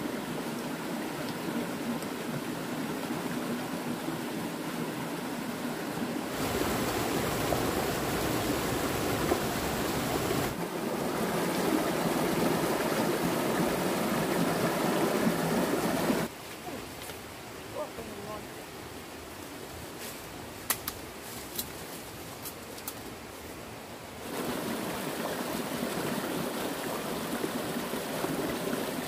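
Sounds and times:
stream water rushing: 0.0 - 20.6, 23.6 - 29.0.

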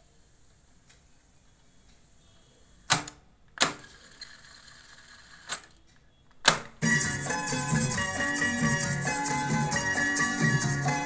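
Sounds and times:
faint mechanism noise: 0.0 - 6.8.

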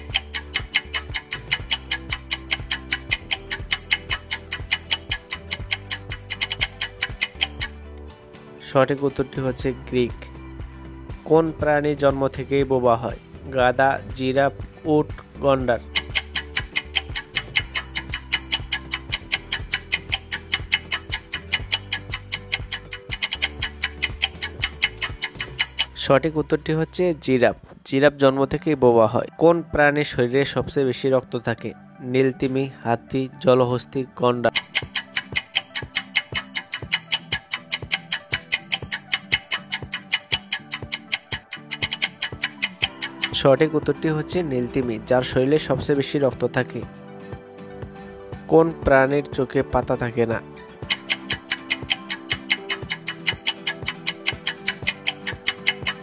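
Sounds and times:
clock-like ticking: 0.0 - 7.8, 15.8 - 26.1, 34.5 - 43.6, 50.9 - 56.0
soft background music: 0.0 - 56.0.

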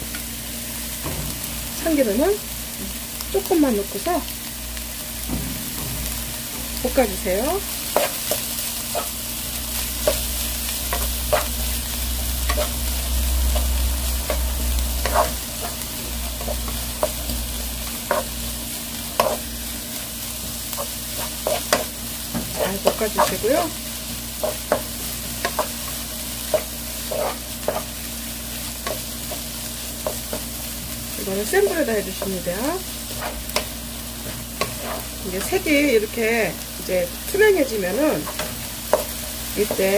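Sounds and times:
vegetables sizzling in a pan: 0.0 - 39.9
wooden spatula scraping a pan: 13.5 - 17.2, 24.4 - 28.0, 33.0 - 35.6.

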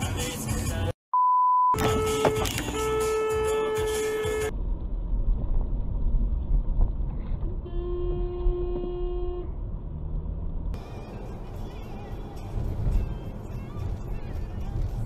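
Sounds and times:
car horn: 1.7 - 4.5, 7.6 - 9.6
lower-pitched car horn: 1.7 - 4.5, 7.6 - 9.6
car engine and road rumble: 1.8 - 15.0.

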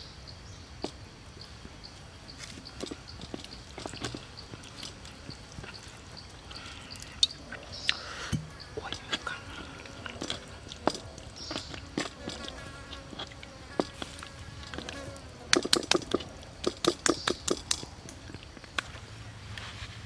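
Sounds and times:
fly buzzing: 2.4 - 17.7.

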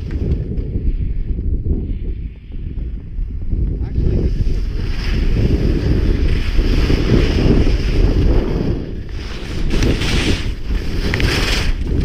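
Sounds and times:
wind buffeting microphone: 0.0 - 12.0
skis hissing over snow: 4.1 - 12.0.

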